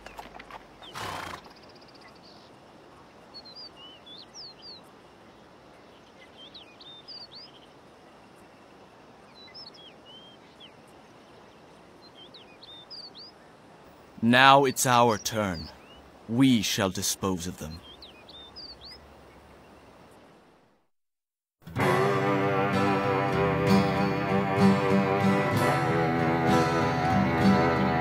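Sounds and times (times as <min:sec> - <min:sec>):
small birds chirping: 0:00.0 - 0:20.3
soft outdoor hiss: 0:00.0 - 0:20.9.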